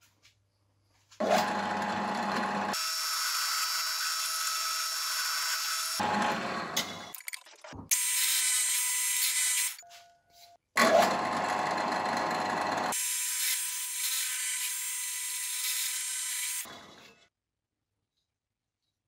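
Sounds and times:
drill press boring into wood: 1.2s - 6.8s.

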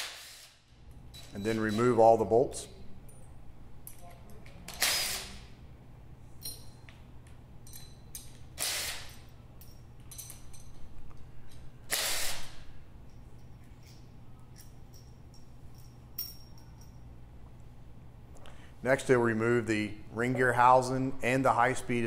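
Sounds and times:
cordless impact driver bursts: 8.6s - 9.1s, 11.9s - 12.6s.

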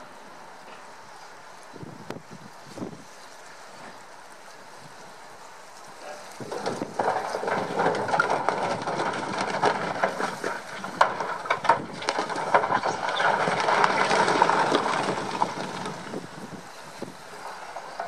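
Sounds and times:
rocks grinding and knocking: 5.8s - 18.0s
boulders crashing into sea: 6.4s - 18.0s.

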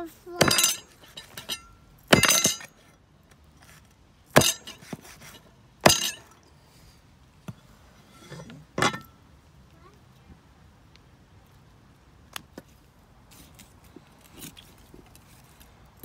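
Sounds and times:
kitchenware clinking: 0.4s - 2.8s, 8.2s - 9.1s.

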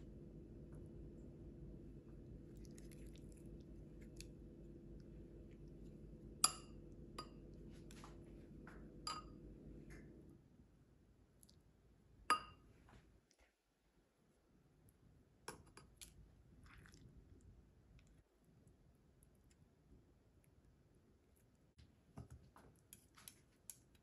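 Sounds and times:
low steady hum: 0.0s - 24.0s
metal spoon clinking ceramic bowl: 6.4s - 7.4s, 9.0s - 9.4s, 12.3s - 12.6s.

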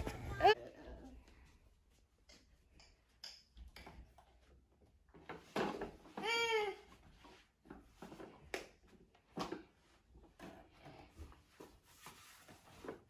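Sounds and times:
tricycle knocks and rustles: 5.1s - 6.5s, 7.1s - 13.0s.

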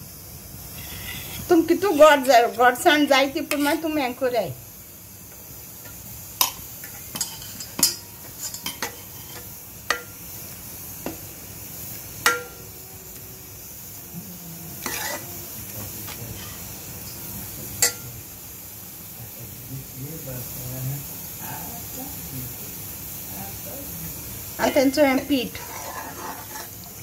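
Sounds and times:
spoon scraping and clinking metal pot: 5.8s - 10.2s, 12.2s - 12.6s, 14.8s - 15.3s, 17.8s - 18.0s, 25.5s - 26.8s.

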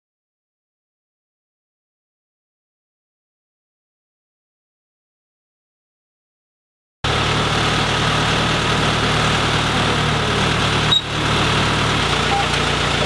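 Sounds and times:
truck engine running: 7.0s - 13.0s.

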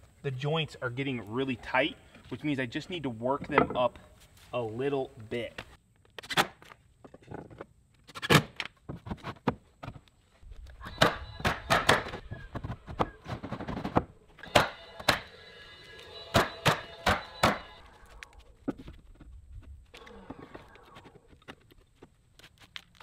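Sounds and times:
nailer shots: 10.9s - 15.3s, 16.3s - 17.7s.

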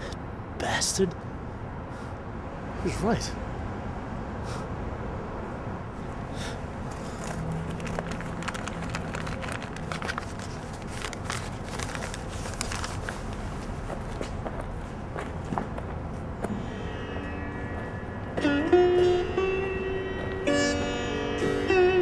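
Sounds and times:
street noise: 0.0s - 22.0s
rustling and crinkling: 6.9s - 14.7s.

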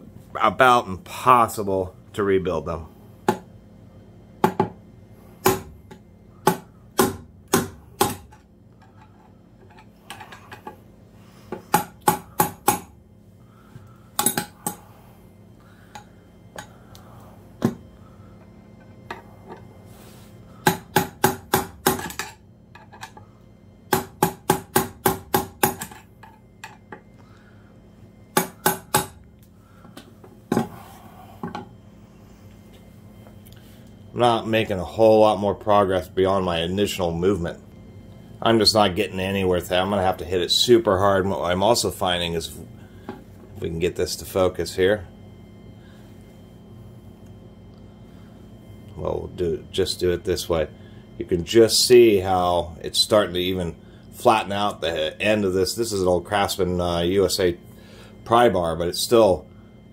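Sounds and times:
hammer striking metal: 28.4s - 29.2s.

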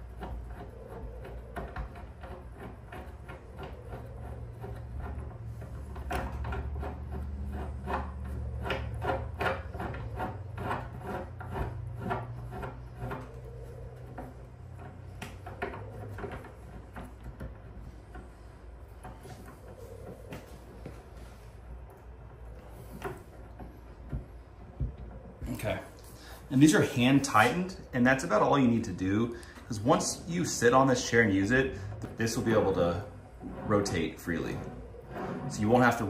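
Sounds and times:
metal threads scratching and clicking: 0.0s - 20.6s.

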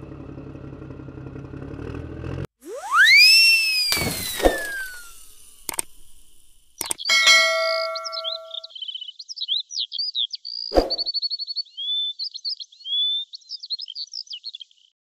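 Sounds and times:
click: 3.9s - 7.0s
songbirds chirping: 6.8s - 14.9s
bell-like chime: 7.1s - 8.6s.

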